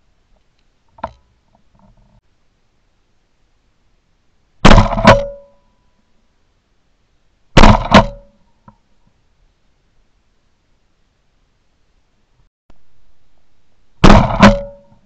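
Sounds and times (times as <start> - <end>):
shotgun shots: 4.6 - 5.4, 7.6 - 8.2, 14.0 - 14.9
crack with ringing tone: 4.6 - 5.7, 7.6 - 8.4, 14.0 - 15.0.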